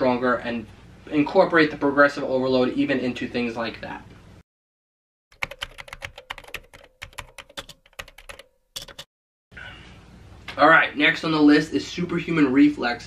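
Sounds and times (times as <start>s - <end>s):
keyboard typing clicks: 5.4s - 9.1s.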